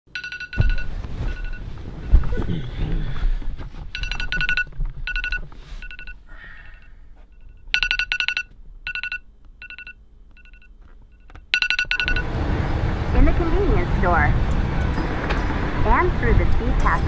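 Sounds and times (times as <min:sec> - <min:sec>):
smartphone alarm rapid pips: 0:00.1 - 0:01.6, 0:04.0 - 0:06.2, 0:07.4 - 0:12.2.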